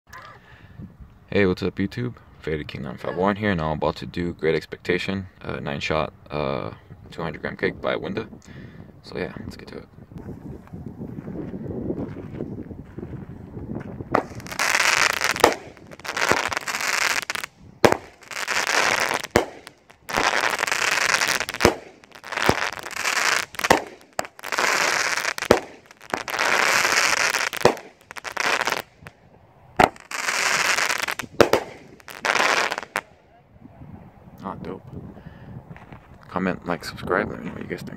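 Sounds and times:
firework bangs: 14.1s - 29.1s, 29.8s - 33.1s
firework crackling: 14.1s - 29.1s, 29.8s - 33.1s.

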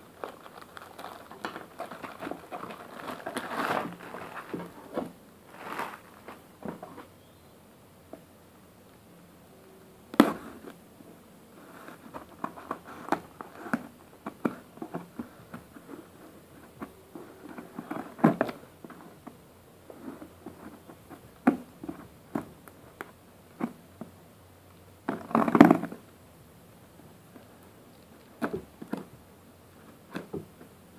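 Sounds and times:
tape crinkling: 0.0s - 7.1s
cardboard box being handled: 0.2s - 7.1s.

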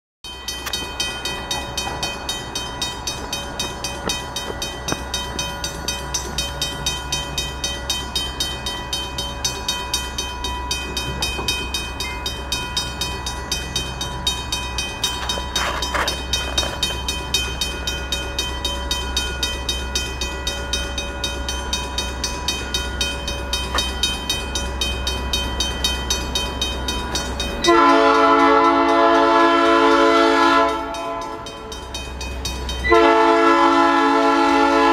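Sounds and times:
crossing bell ringing: 0.2s - 34.9s
train horn: 27.6s - 31.5s, 32.8s - 34.9s.

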